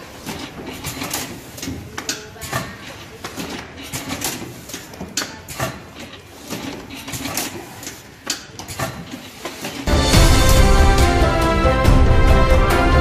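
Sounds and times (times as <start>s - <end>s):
banding machine clicks and clacks: 0.0s - 9.9s
machine and conveyor running: 9.3s - 13.0s.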